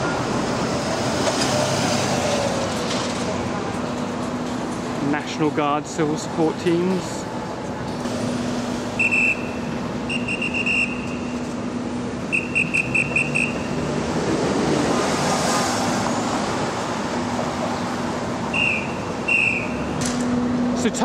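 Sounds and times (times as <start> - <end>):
city traffic engine hum: 0.0 - 21.0
short high-pitched beeps: 9.0 - 11.3
vehicle passing: 12.3 - 21.0.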